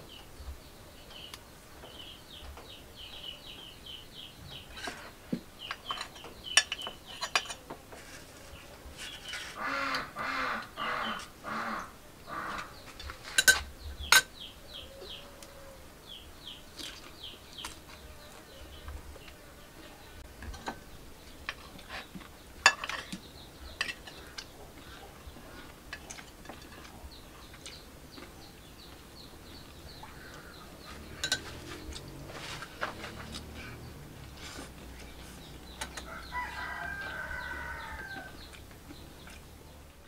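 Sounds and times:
bird chirping: 0.0s - 7.6s, 9.0s - 40.0s
metal spoon clinking on dishes: 5.8s - 7.6s, 13.4s - 14.3s, 22.6s - 24.2s, 31.1s - 31.7s.

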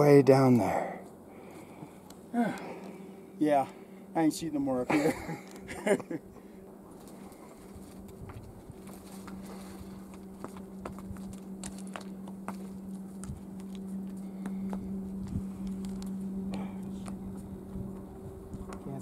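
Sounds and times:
shrubs rustling: 0.0s - 19.0s
steady low hum: 0.0s - 19.0s
footsteps on rocky ground: 6.9s - 16.2s.

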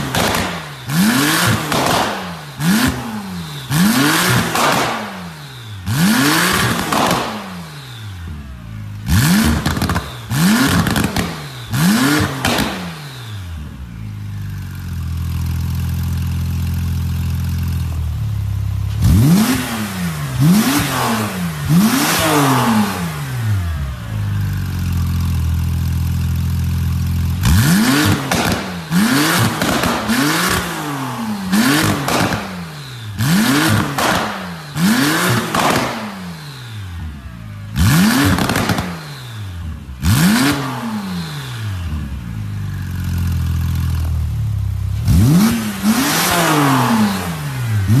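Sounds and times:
exhaust popping and crackling: 0.0s - 7.8s, 8.8s - 13.1s, 24.4s - 36.5s, 37.6s - 40.7s
car engine revving and idling: 0.0s - 48.0s.

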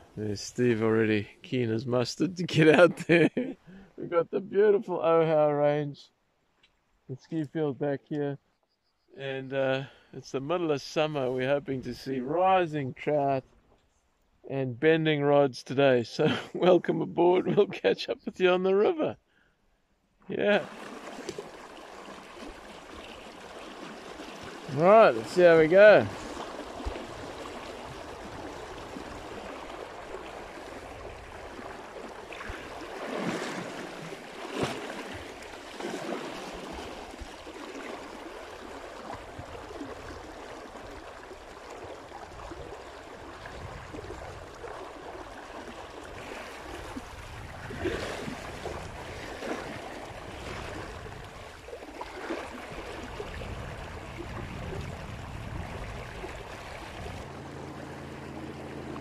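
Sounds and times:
river running over stones: 20.6s - 43.4s.

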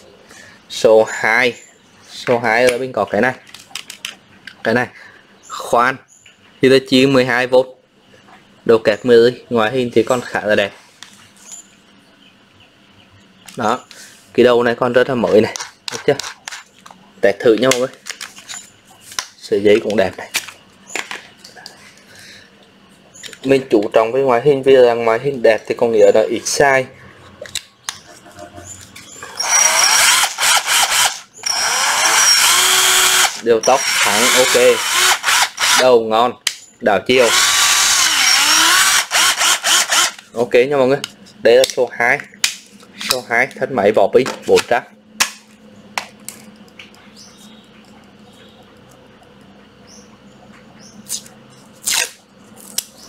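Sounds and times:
steady low hum: 0.0s - 53.0s
cordless drill motor whining: 29.2s - 35.8s, 37.2s - 40.2s.

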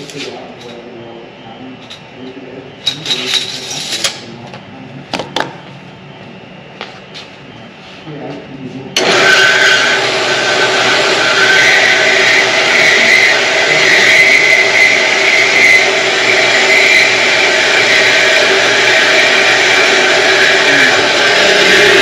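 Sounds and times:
metal-cutting saw cutting steel: 9.0s - 22.0s.

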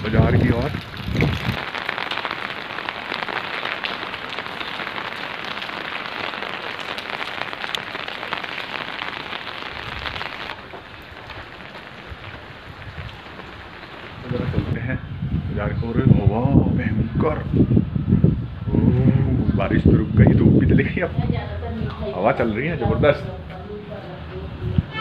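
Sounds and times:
rain pattering on an umbrella: 0.0s - 14.8s.

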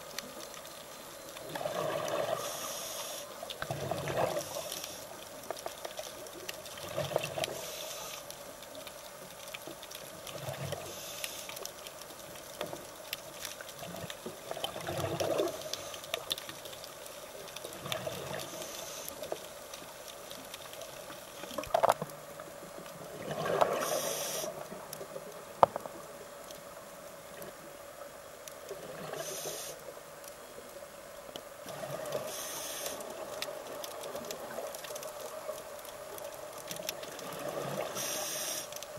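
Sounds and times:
regulator breathing hiss: 2.4s - 3.4s, 7.5s - 8.3s, 10.8s - 11.6s, 18.4s - 19.3s, 23.8s - 24.6s, 29.2s - 29.8s, 32.2s - 33.1s, 37.9s - 38.8s.

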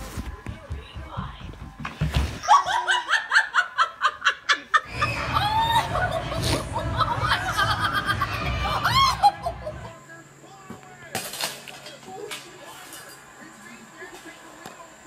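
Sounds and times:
person laughing: 2.4s - 10.0s.

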